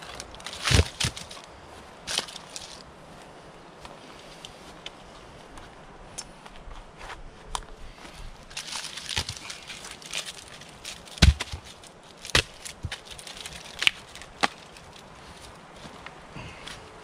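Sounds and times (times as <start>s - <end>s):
wooden logs knocking together: 0.0s - 1.4s, 8.5s - 15.5s.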